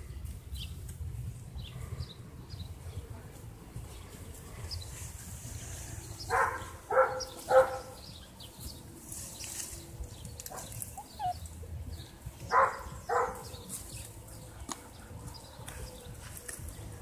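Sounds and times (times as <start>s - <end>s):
puppy yapping: 10.5s - 11.4s.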